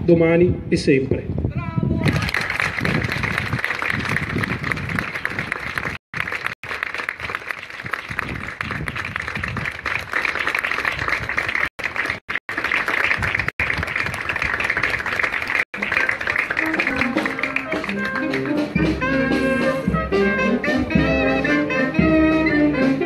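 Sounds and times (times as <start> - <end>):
crowd applauding: 2.0 - 19.6.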